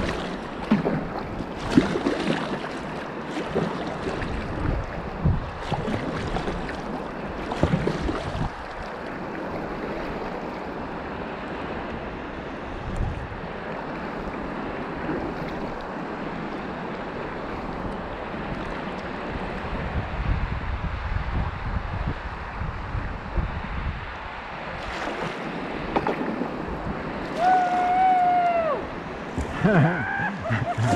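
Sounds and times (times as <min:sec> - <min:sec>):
wind buffeting microphone: 0:00.0 - 0:08.9, 0:09.5 - 0:16.6, 0:17.4 - 0:30.9
river current rushing: 0:00.0 - 0:12.7, 0:24.2 - 0:30.9.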